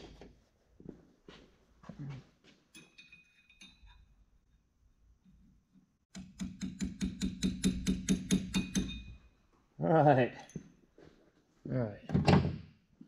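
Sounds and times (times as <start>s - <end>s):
faint metal clinks: 2.7s - 4.1s
hammer tapping a metal punch: 6.1s - 9.2s.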